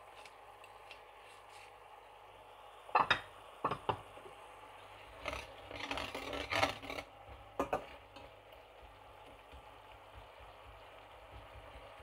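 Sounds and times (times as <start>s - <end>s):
spatula scraping metal pan: 5.2s - 7.1s.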